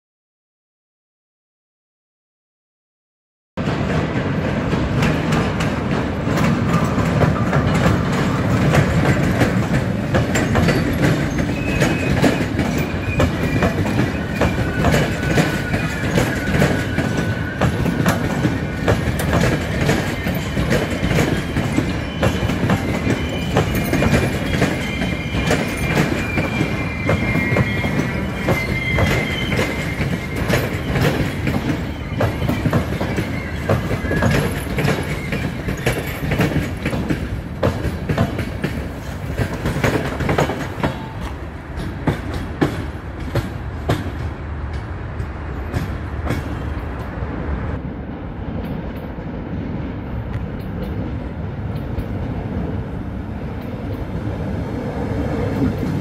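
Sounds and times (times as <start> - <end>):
train wheels rumbling and clacking: 3.6 - 56.0
high wheel squeal: 10.4 - 36.8.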